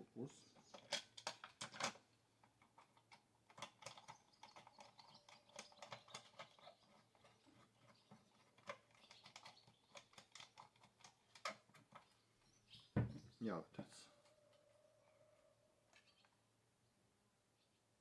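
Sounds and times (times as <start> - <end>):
plastic and metal clicks and rattles: 0.6 - 12.1.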